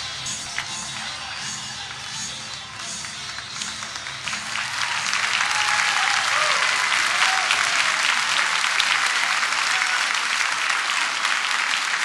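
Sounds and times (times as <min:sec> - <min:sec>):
music: 0:00.0 - 0:08.2
audience applauding: 0:00.0 - 0:12.0.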